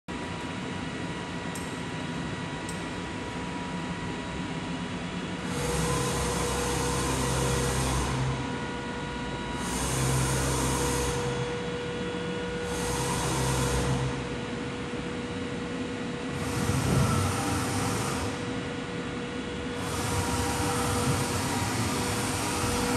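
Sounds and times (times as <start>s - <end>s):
steady machine whine: 0.1s - 22.9s
milling machine hum: 0.2s - 22.9s.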